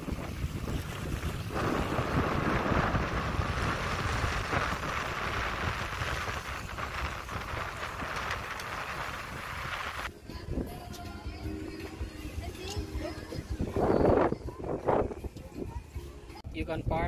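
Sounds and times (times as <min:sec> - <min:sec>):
wind buffeting microphone: 0:00.0 - 0:10.8, 0:13.1 - 0:15.7.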